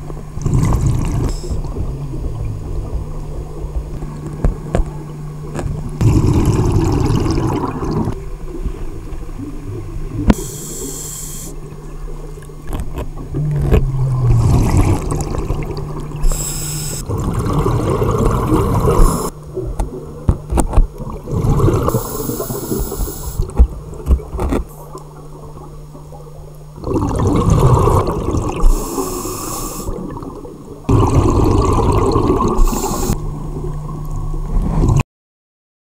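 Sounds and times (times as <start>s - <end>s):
steady low hum: 0.0s - 35.0s
gurgle of exhaled bubbles: 0.3s - 10.5s, 11.7s - 35.0s
hissing regulator inhale: 10.3s - 11.6s, 16.2s - 17.1s, 18.9s - 19.3s, 21.9s - 23.5s, 28.6s - 30.0s, 32.6s - 33.2s.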